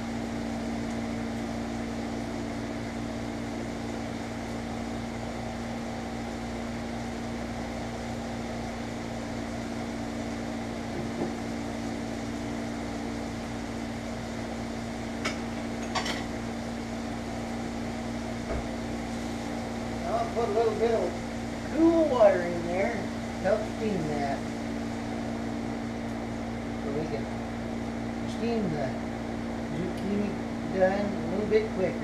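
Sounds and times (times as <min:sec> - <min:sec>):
steady motor hum: 0:00.0 - 0:32.0
dishes clinking: 0:15.3 - 0:16.3.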